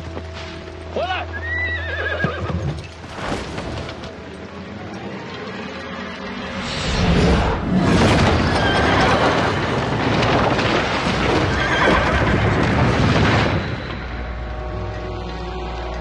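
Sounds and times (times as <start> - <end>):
hoofbeats: 0.0 - 3.1
background music: 0.0 - 7.8, 11.2 - 16.0
horses whinnying: 1.3 - 2.9, 11.3 - 12.7.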